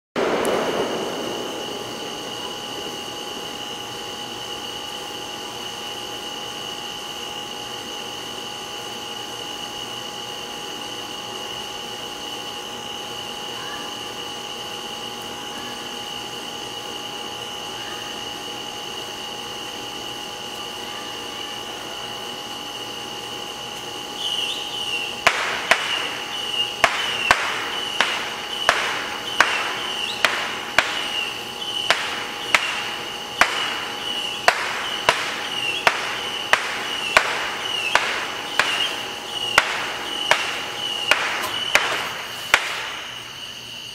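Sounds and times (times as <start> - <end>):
firework bangs: 0.2 - 5.2, 24.2 - 43.4
fireworks hissing rush: 0.2 - 43.9
high-pitched whine: 0.2 - 43.9.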